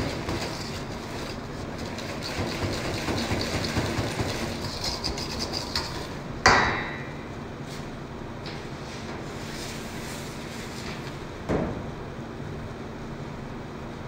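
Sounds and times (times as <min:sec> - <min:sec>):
whisk scraping metal bowl: 0:00.0 - 0:06.2
kitchen hum: 0:00.0 - 0:13.1.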